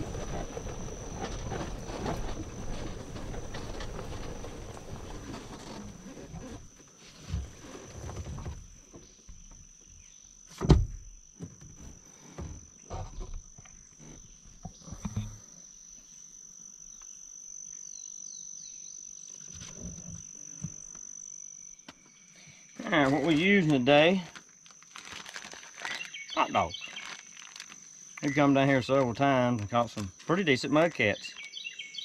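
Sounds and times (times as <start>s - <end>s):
knocks and rustles: 0.0s - 9.6s
insects droning: 0.0s - 32.0s.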